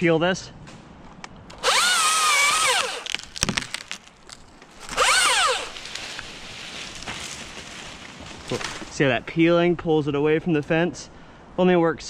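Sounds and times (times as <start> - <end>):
electric chainsaw cutting wood: 1.5 - 3.9, 4.8 - 5.8
wood cracking: 1.5 - 9.0.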